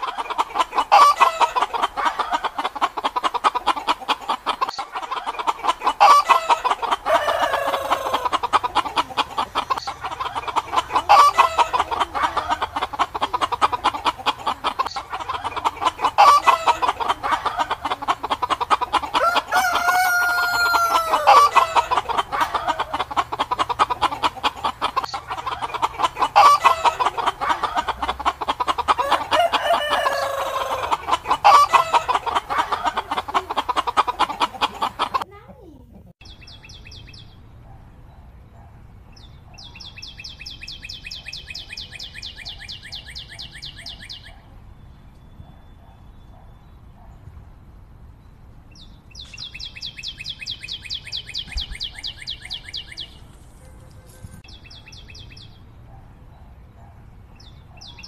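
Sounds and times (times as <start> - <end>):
chicken squawks: 0.0 - 35.3
chickens clucking: 0.0 - 37.3, 38.6 - 44.6, 48.7 - 56.0
rooster crowing: 6.0 - 8.3, 19.1 - 22.7, 29.0 - 32.8.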